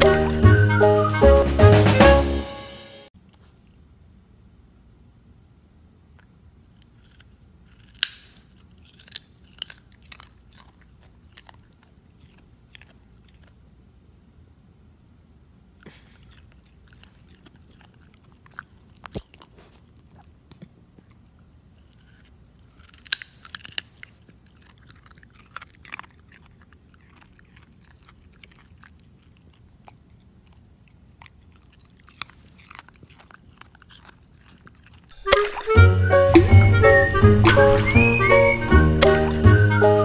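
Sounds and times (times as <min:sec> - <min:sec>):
dog crunching a carrot: 0:03.2 - 0:04.0, 0:06.0 - 0:14.0, 0:15.6 - 0:39.8.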